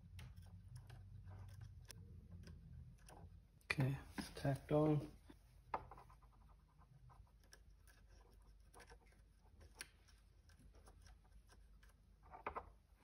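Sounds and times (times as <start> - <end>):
soldering iron ticks and scratches: 0.0 - 3.7.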